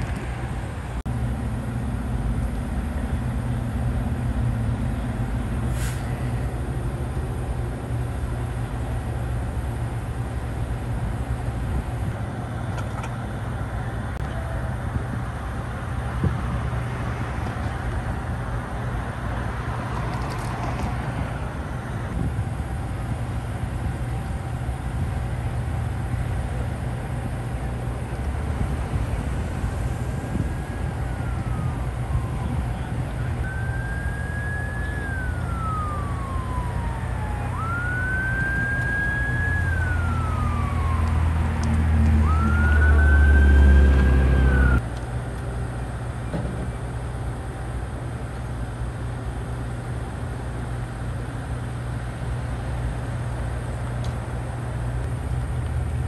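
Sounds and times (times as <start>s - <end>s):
heavy engine rumble: 0.0s - 56.0s
low engine rumble: 0.0s - 56.0s
emergency vehicle siren wailing: 28.6s - 44.8s.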